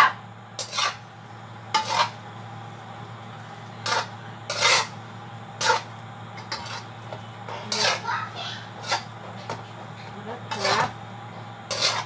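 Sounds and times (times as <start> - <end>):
steady low hum: 0.0 - 12.0
spatula scraping metal pan: 0.6 - 1.0, 1.7 - 2.2, 3.8 - 5.0, 5.6 - 6.9, 7.5 - 9.6, 10.4 - 11.0, 11.7 - 12.0.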